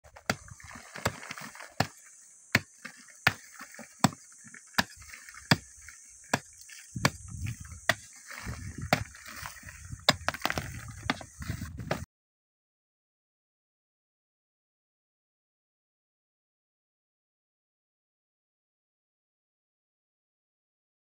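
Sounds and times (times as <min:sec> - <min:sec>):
hand tool striking rock: 0:00.1 - 0:12.0.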